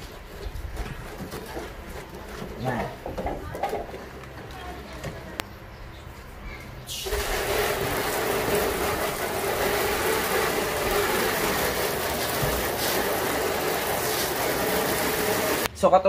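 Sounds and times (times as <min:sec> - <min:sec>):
hose spraying water on metal: 0:06.9 - 0:15.7.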